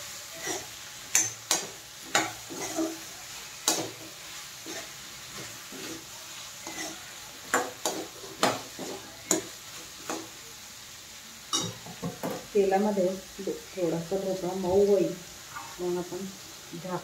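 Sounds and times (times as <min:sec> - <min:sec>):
frying oil sizzling: 0:00.0 - 0:17.0
metal spoon scraping pan: 0:00.4 - 0:10.2.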